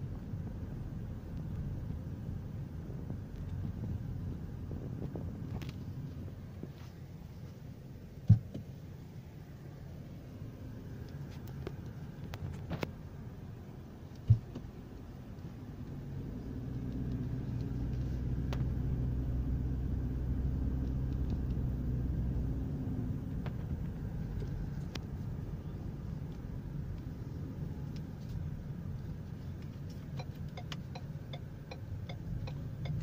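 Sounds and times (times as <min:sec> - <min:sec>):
road and engine rumble inside car: 0:00.0 - 0:33.0
thump: 0:08.2 - 0:08.6.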